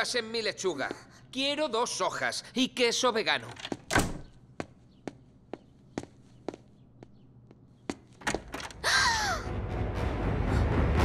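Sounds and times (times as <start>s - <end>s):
dramatic music: 9.0s - 11.0s.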